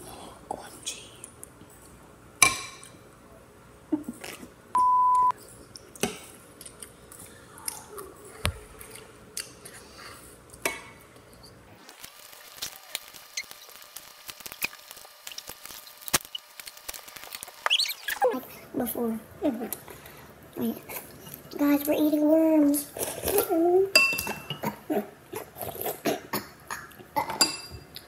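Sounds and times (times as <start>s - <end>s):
electronic beep: 4.8s - 5.3s
wet chewing and mouth clicks: 5.6s - 8.1s, 8.8s - 9.9s.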